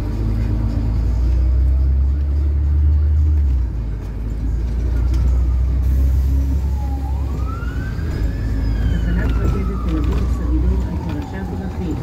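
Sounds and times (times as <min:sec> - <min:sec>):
bus engine rumble: 0:00.0 - 0:12.0
siren wailing: 0:06.6 - 0:12.0.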